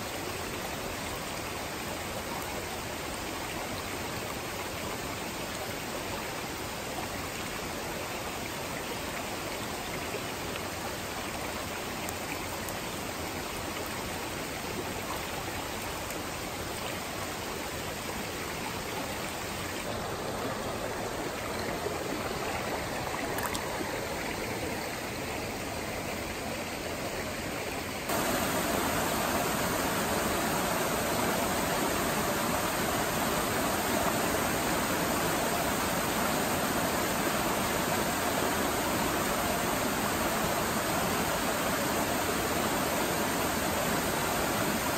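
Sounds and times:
brook rushing over rocks: 19.8 - 24.8.

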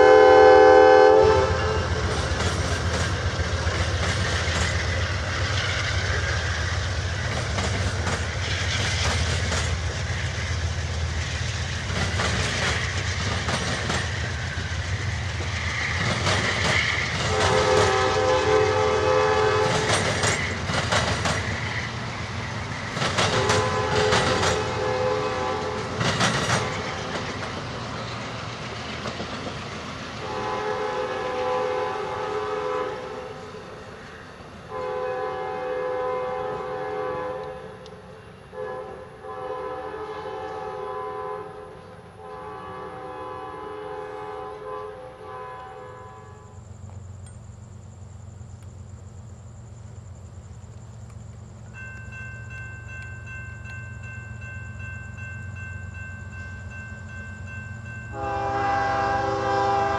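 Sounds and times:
locomotive horn blast: 0.0 - 2.2, 17.3 - 20.0, 23.3 - 26.0, 30.2 - 33.4, 34.7 - 37.9, 38.5 - 46.6, 58.1 - 59.9
train cars rumbling past: 0.0 - 59.9
wheels clicking over rail joints: 1.8 - 30.4, 49.8 - 58.2.

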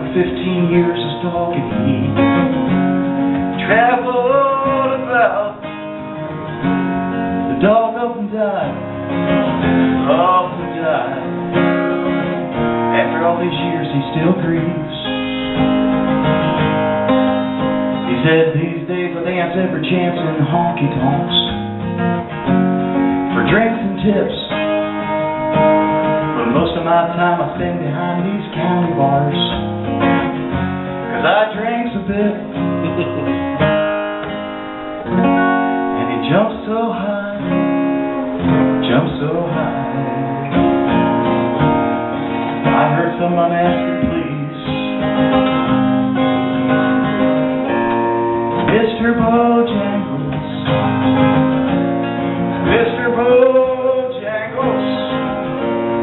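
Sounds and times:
man singing into microphone: 0.0 - 2.4, 3.6 - 5.8, 7.5 - 9.0, 10.0 - 11.4, 12.9 - 15.5, 18.1 - 21.7, 23.3 - 24.8, 26.3 - 29.7, 31.1 - 33.3, 36.0 - 40.6, 42.6 - 45.1, 48.6 - 51.3, 52.6 - 55.6
acoustic guitar strumming: 0.0 - 56.0.

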